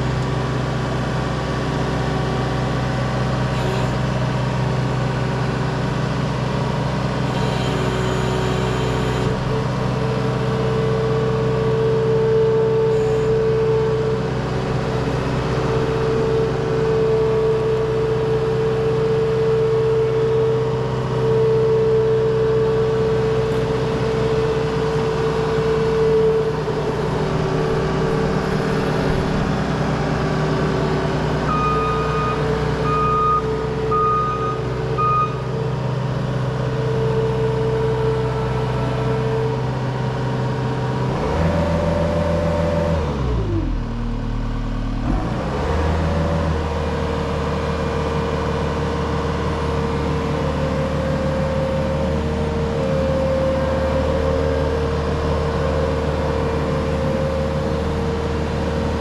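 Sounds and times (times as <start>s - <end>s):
diesel engine running: 0.0s - 59.0s
short high beeps: 31.5s - 35.4s.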